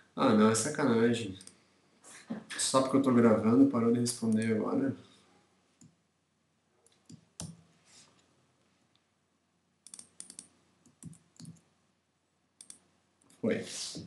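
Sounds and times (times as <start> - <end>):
computer keys clicking: 6.9 - 7.6, 9.8 - 11.6, 12.6 - 13.4.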